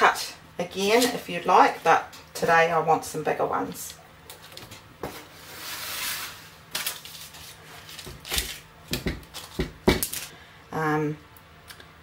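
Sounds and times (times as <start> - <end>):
paper rustle: 5.6 - 8.6.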